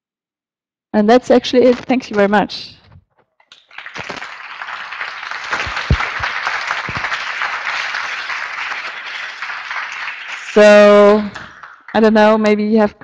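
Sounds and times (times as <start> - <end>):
audience applauding: 3.5 - 12.2.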